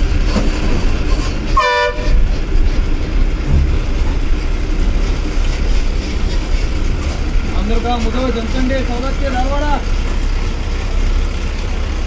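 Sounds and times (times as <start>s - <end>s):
bus diesel engine: 0.0s - 12.0s
road noise: 0.0s - 12.0s
horn honking: 1.5s - 2.2s.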